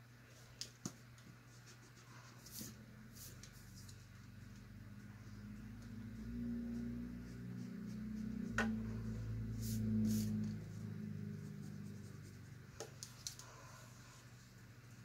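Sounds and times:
steady low hum: 0.0 - 15.0
hand rubbing paper: 5.6 - 14.3.

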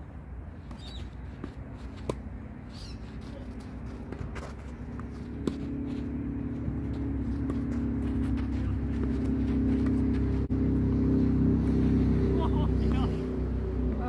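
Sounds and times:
low engine hum: 0.0 - 14.0
tennis racquet hitting ball: 0.7 - 10.4
bird chirping: 2.7 - 3.0.

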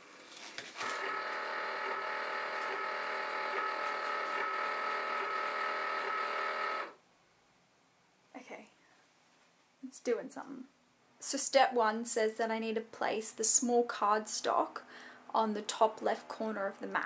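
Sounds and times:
cutting machine motor whine: 0.8 - 7.0.

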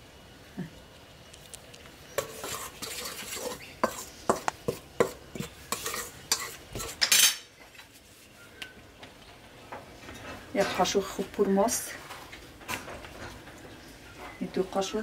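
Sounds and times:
spoon stirring flour in metal bowl: 2.2 - 7.3.

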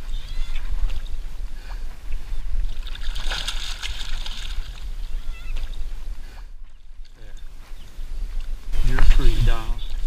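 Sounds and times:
fish splashing in water: 2.6 - 5.2.

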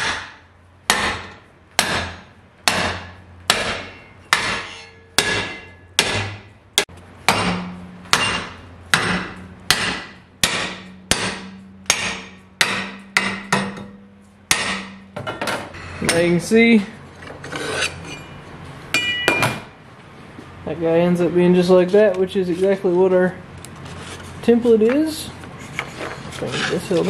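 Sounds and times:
hammer striking steel plate: 0.0 - 16.4, 18.9 - 19.7.

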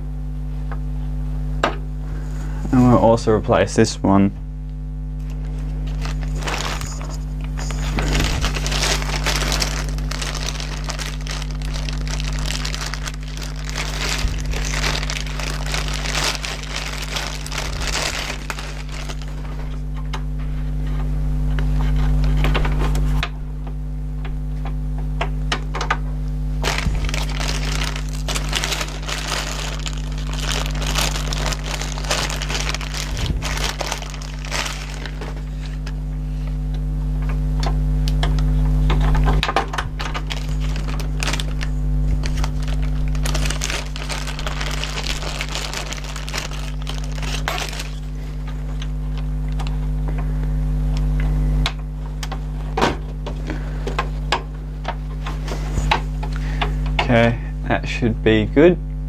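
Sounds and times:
steady low hum: 0.0 - 59.0
plastic bag crinkling: 5.2 - 19.9, 26.6 - 36.0, 39.7 - 48.9.

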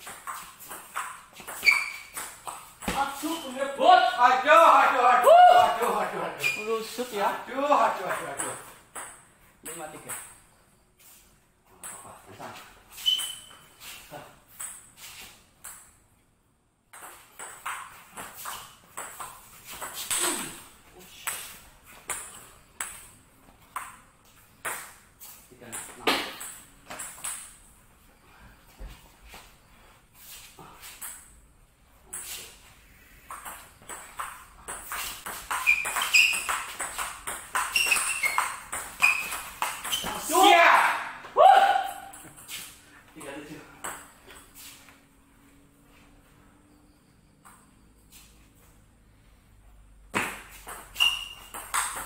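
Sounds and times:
short high squeaks: 1.4 - 2.3, 6.4 - 7.0, 12.9 - 14.1, 34.9 - 36.8, 37.6 - 40.3, 50.9 - 52.0.

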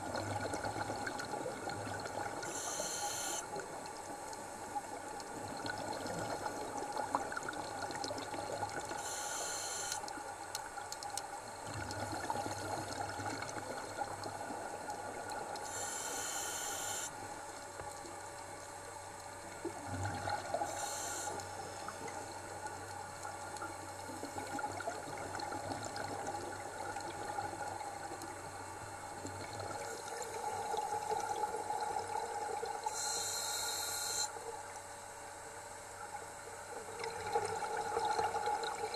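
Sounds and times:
underwater water and bubbles: 0.0 - 38.9
short regulator hiss: 15.7 - 17.1, 20.7 - 21.4.

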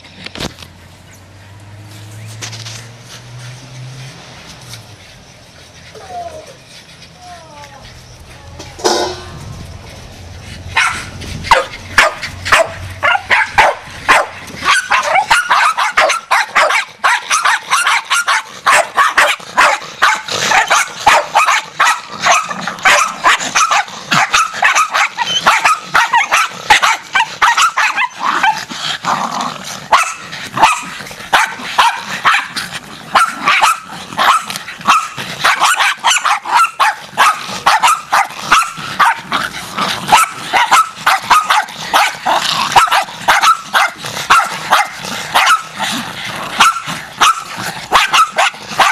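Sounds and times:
dogs barking: 10.6 - 48.9.

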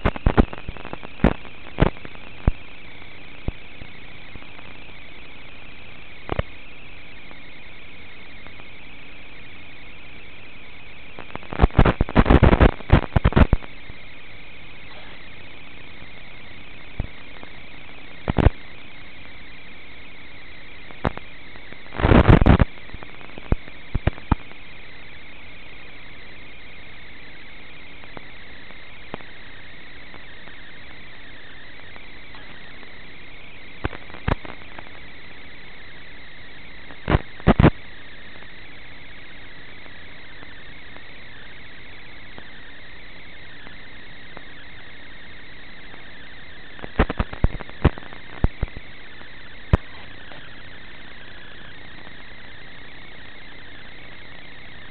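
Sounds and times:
static crackles and pops: 0.0 - 54.9
steady static hiss: 0.0 - 54.9.

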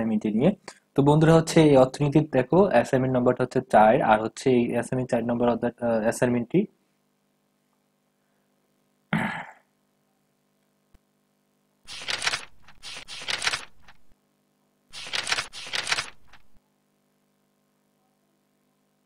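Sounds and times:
person coughing: 9.1 - 9.7.

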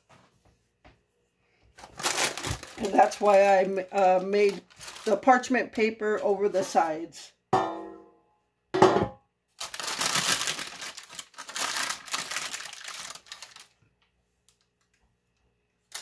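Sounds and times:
parchment paper rustling: 1.7 - 6.9, 9.6 - 14.0
loud knock: 8.8 - 9.2.

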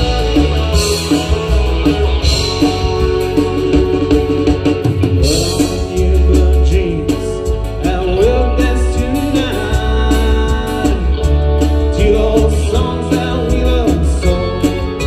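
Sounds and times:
bass guitar: 0.0 - 15.0
drum kit: 0.0 - 15.0
electric guitars: 0.0 - 15.0
man singing: 5.1 - 15.0.

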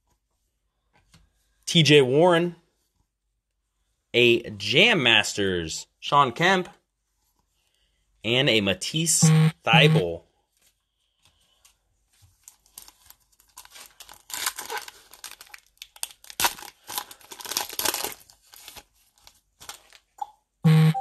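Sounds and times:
wrapper tearing and crinkling: 12.4 - 20.2.

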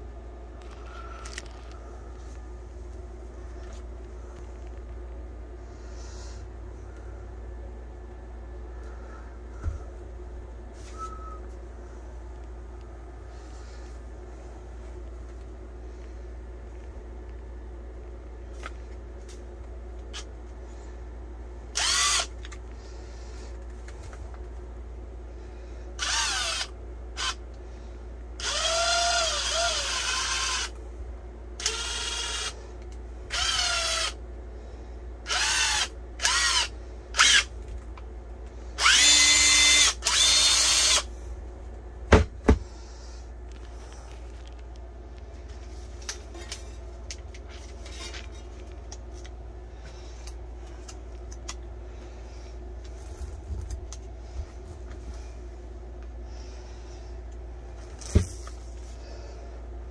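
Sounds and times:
impact wrench motor whining: 21.7 - 22.5, 26.0 - 27.4, 28.4 - 30.8, 31.6 - 32.6, 33.3 - 34.2, 35.2 - 37.5, 38.8 - 41.1.

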